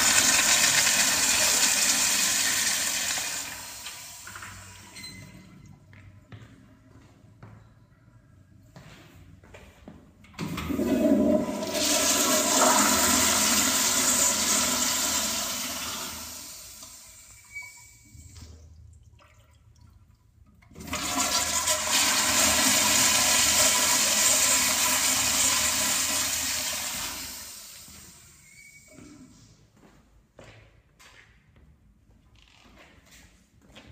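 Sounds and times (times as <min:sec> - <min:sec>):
toilet flushing: 0:00.0 - 0:05.2, 0:10.4 - 0:19.5, 0:20.6 - 0:28.9.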